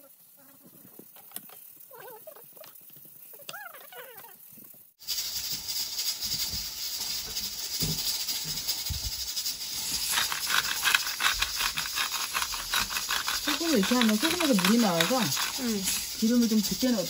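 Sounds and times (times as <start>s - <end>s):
potato sizzling in hot oil: 5.0s - 17.0s.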